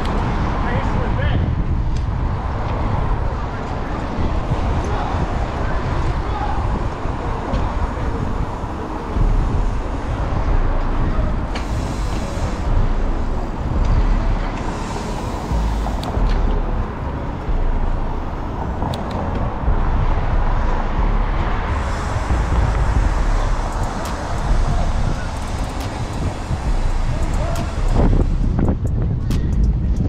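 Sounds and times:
street traffic noise: 0.0s - 30.0s
wind buffeting microphone: 0.0s - 30.0s
sharp clicks: 18.8s - 19.5s.

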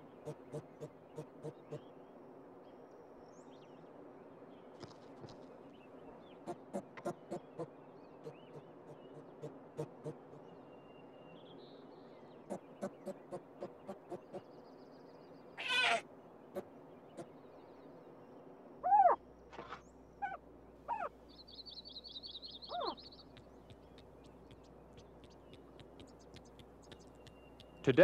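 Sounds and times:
animal whining calls: 15.6s - 16.0s, 18.8s - 21.1s, 22.6s - 27.9s
bird trilling: 15.6s - 16.0s, 18.8s - 19.2s, 20.2s - 21.1s, 22.1s - 28.0s.

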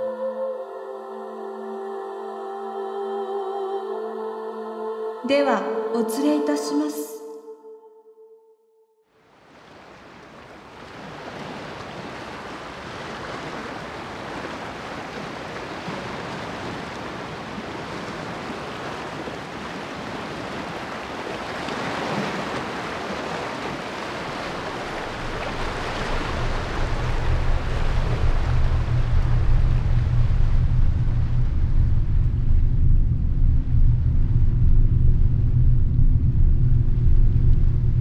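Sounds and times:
waves washing on sandy shore: 9.3s - 30.2s
deep low rumble: 24.7s - 38.0s.

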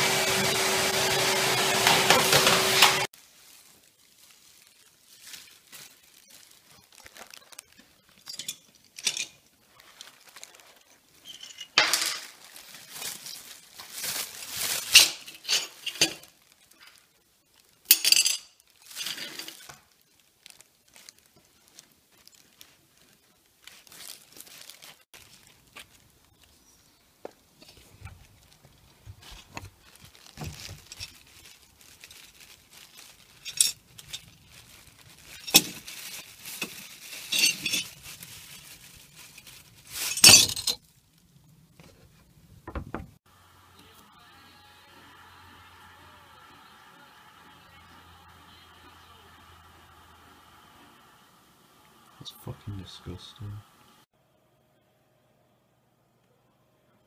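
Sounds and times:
plastic bag crinkling: 0.8s - 17.9s, 18.6s - 26.8s, 27.6s - 41.5s
ceramic pieces clinking: 8.2s - 9.4s, 14.8s - 16.3s, 17.9s - 19.7s, 37.2s - 38.0s.

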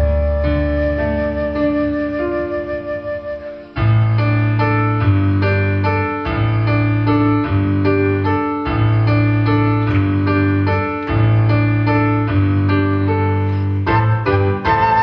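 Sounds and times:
flute notes: 0.0s - 5.0s, 13.0s - 15.0s
keyboard piano chords: 0.0s - 15.0s.

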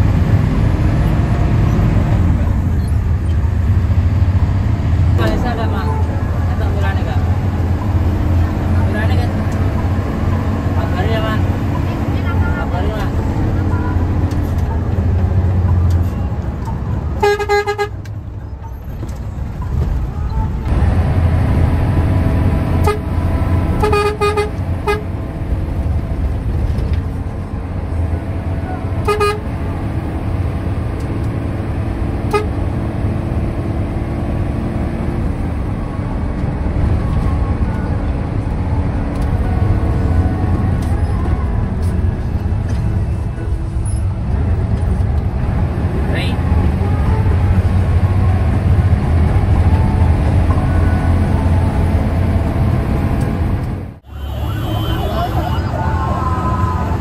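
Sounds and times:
bus engine and road rumble: 0.0s - 57.0s
vehicle horn blasts: 17.2s - 18.0s, 22.8s - 23.2s, 23.8s - 25.1s, 29.0s - 29.5s, 32.3s - 32.6s, 54.1s - 55.5s.

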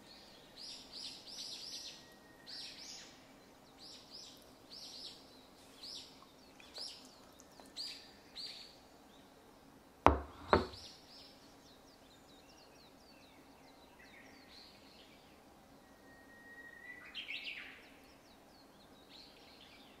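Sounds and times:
birds chirping: 3.8s - 8.7s, 10.1s - 10.9s
sharp knocks: 10.1s - 10.8s.

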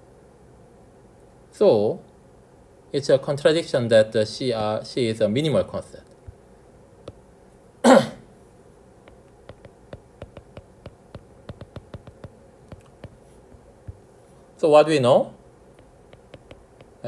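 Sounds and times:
man coughing: 7.8s - 8.3s
stylus tapping on glass screen: 9.1s - 14.0s, 15.8s - 17.0s.

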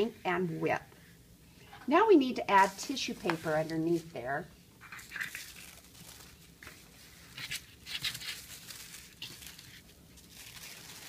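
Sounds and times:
tissue paper rustling: 2.2s - 11.0s.

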